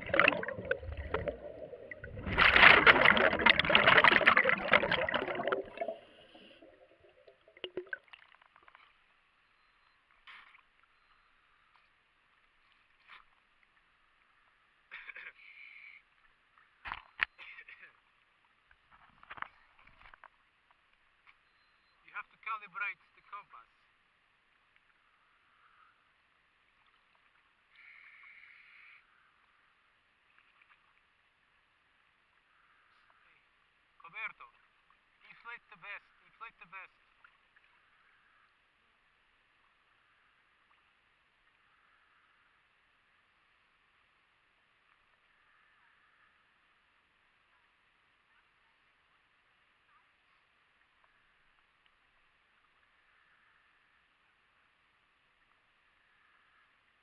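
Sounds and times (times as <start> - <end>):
underwater bubbles rushing: 0.0 - 8.3
water ticking against camera case: 0.0 - 9.1
steady water hiss: 0.0 - 9.2, 10.2 - 16.8, 23.6 - 57.0.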